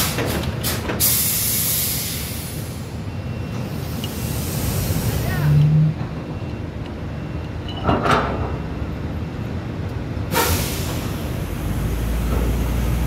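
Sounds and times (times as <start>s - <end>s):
rush of hissing: 3.8s - 5.3s, 10.4s - 13.0s.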